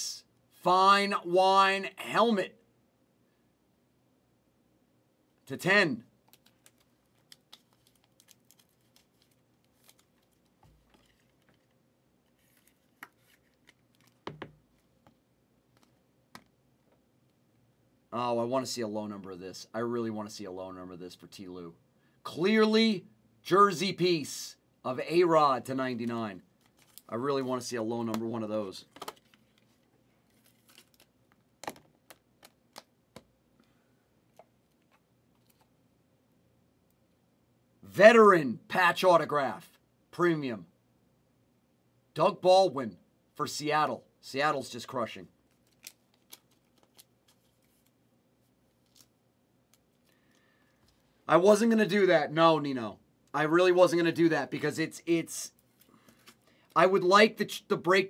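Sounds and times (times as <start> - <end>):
trading cards clicking and rustling: 6.2 - 11.8, 26.0 - 27.1, 28.9 - 33.3, 45.5 - 47.9.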